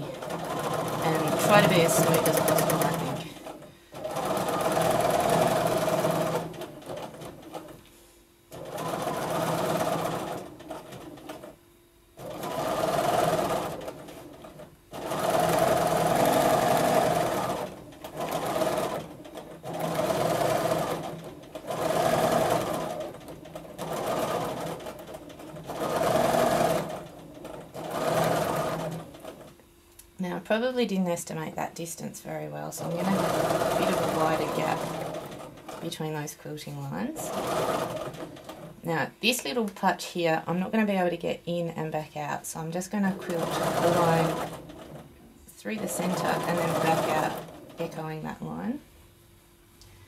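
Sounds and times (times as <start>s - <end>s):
sewing machine stitching: 0.0s - 7.8s, 8.5s - 11.6s, 12.2s - 29.6s, 32.8s - 36.3s, 37.0s - 38.9s, 42.9s - 48.7s.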